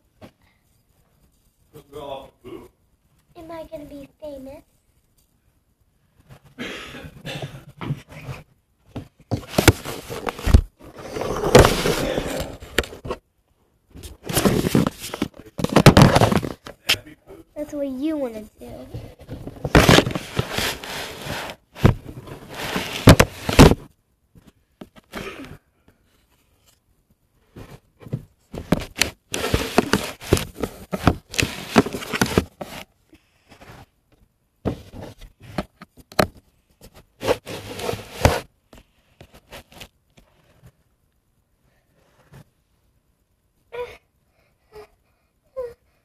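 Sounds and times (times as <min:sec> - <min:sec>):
microphone handling rustling: 0:09.0 - 0:13.2, 0:13.9 - 0:16.9, 0:18.9 - 0:23.9, 0:27.6 - 0:32.9.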